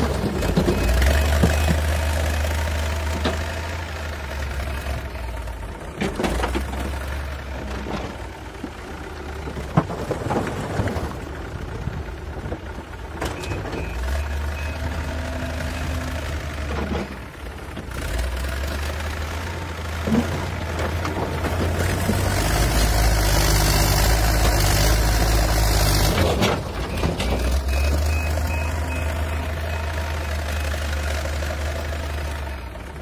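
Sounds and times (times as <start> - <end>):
diesel engine running: 0.0 - 33.0
concrete blocks knocking and clattering: 9.5 - 11.2.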